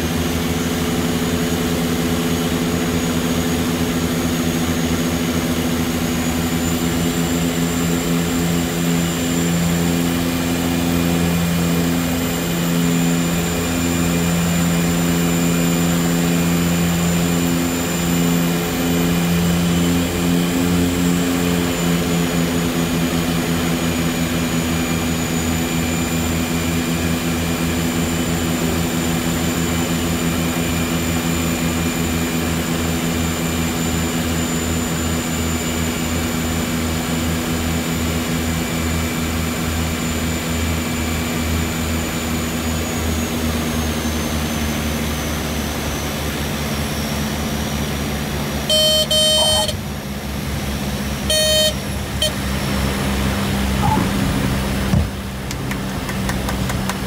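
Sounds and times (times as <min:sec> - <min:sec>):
turboprop engines droning: 0:00.0 - 0:57.0
loud horn-like tone: 0:48.7 - 0:49.8, 0:51.2 - 0:52.6.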